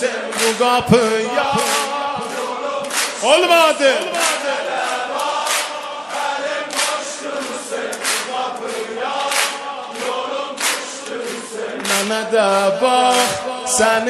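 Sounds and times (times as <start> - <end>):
male choir singing: 0.0 - 14.0.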